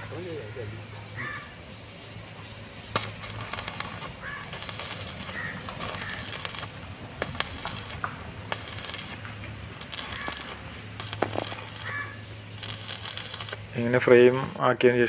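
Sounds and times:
crows cawing: 0.0 - 1.6, 3.9 - 6.6, 9.9 - 10.6, 11.5 - 12.3
welding arc crackling: 2.8 - 14.6
sharp snaps: 2.9 - 13.8.

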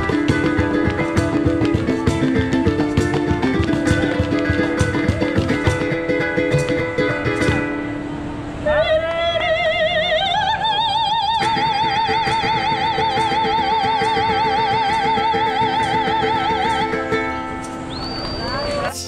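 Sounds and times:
small guitar-like instrument chords: 0.0 - 8.1.

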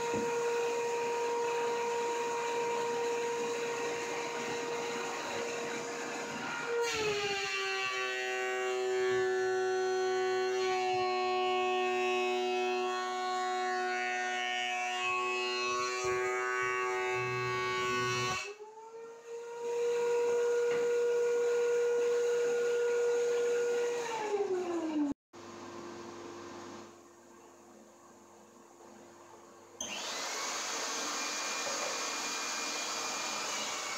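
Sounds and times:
thickness planer whine: 0.0 - 25.1, 29.8 - 33.9.

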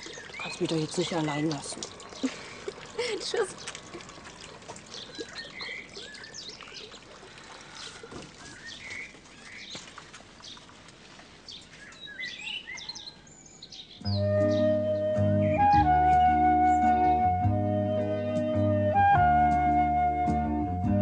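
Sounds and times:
birds chirping and singing: 4.9 - 7.0, 11.5 - 18.6
instrumental music with sustained tones: 14.0 - 21.0.

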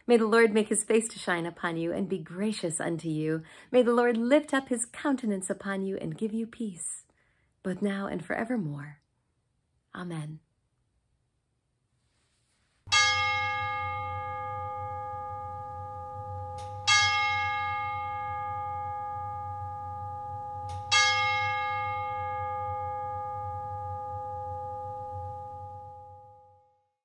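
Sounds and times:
bell ringing: 12.9 - 26.7.

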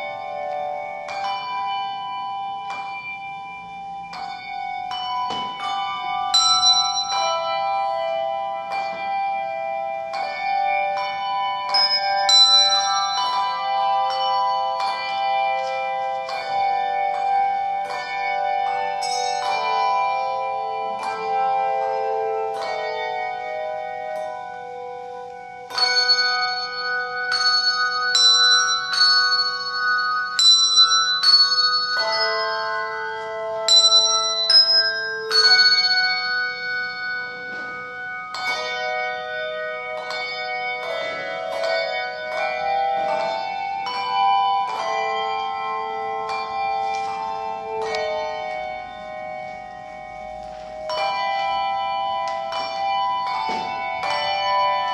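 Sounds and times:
handbell choir ringing chords: 0.0 - 54.9.

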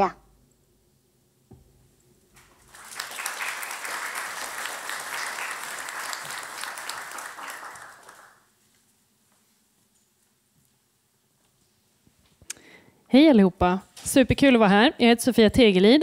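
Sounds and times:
audience applauding: 2.5 - 8.5.

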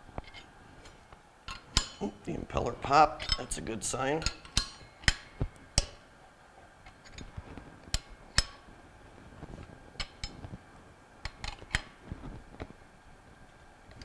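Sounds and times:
wrench clinking on metal: 3.2 - 3.5.

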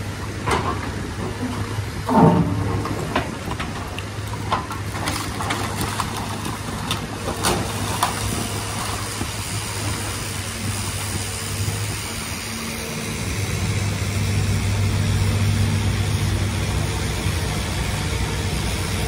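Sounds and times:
excavator diesel engine running: 0.0 - 19.0
debris clattering and knocking: 0.5 - 8.2.

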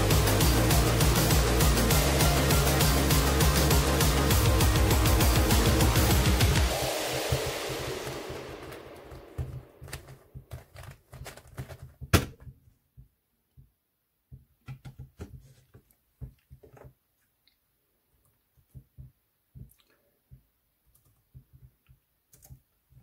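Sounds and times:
background music: 0.0 - 10.4
twisty puzzle clicking and rattling: 9.4 - 12.0.

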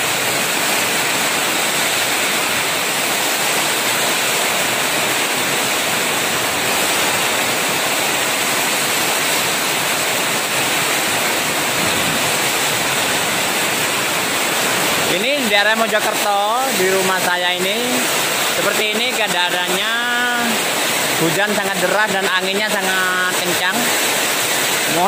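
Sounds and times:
strong wind: 0.0 - 15.2
heavy rain pouring: 0.0 - 25.0.

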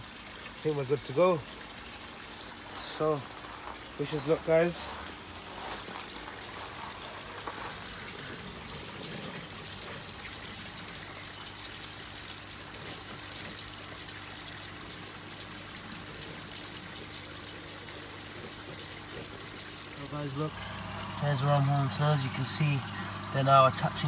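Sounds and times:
trickle of running water: 0.0 - 24.0.

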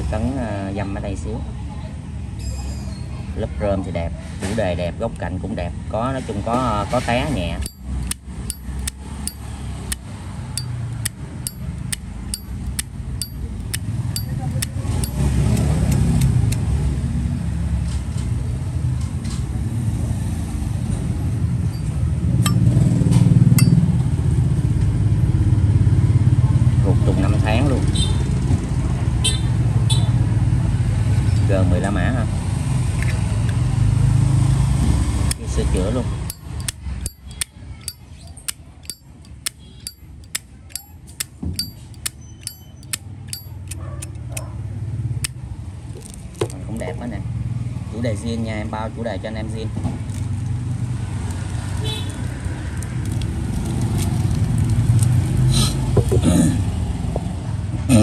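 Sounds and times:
road traffic rumble: 0.0 - 58.0
sharp clicks: 7.6 - 10.0, 10.6 - 16.7, 36.3 - 44.5
lighter lid clicking open and shut: 10.6 - 16.6.

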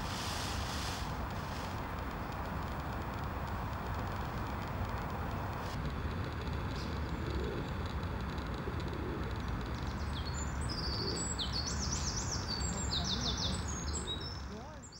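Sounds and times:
songbird chirping: 9.6 - 14.9.

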